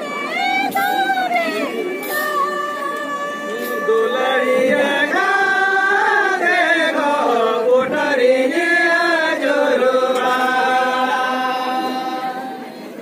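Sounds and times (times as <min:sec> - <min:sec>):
women singing in unison: 0:00.0 - 0:12.8.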